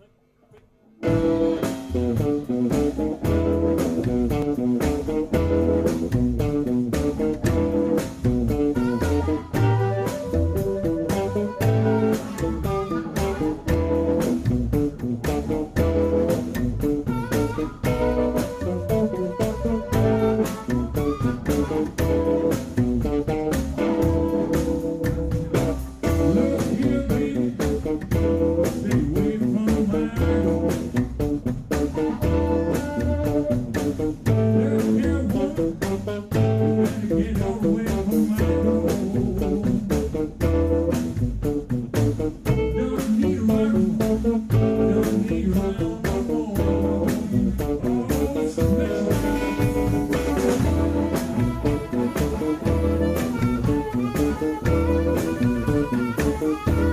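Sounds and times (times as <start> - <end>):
upright bass: 1.0 - 56.9
harmonica wailing: 8.6 - 14.2, 17.0 - 22.6, 32.0 - 33.9, 48.7 - 56.9.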